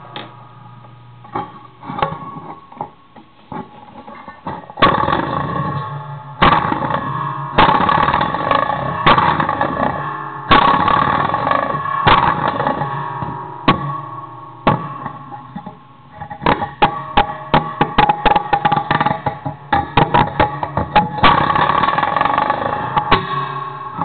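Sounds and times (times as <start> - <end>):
metal springs twanging: 3.6 - 24.0.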